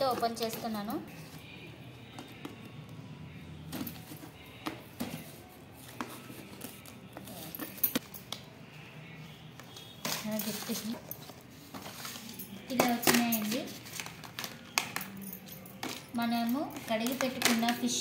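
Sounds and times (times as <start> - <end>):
plastic boxes clicking and knocking: 16.8 - 18.0.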